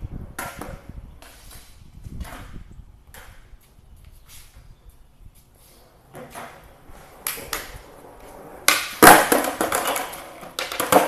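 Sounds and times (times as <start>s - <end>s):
skateboard wheels rolling on concrete: 0.0s - 11.0s
skateboard bouncing on concrete: 0.2s - 3.7s, 6.0s - 11.0s
skateboard cracking and slapping down: 6.1s - 11.0s.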